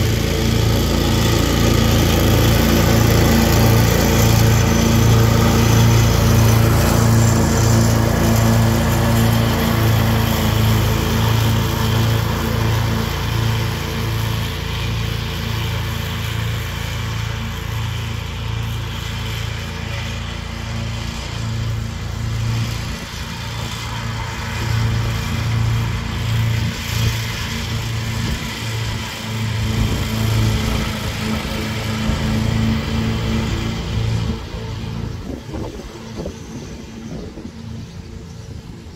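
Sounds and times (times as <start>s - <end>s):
ride-on lawn mower engine: 0.0s - 38.9s.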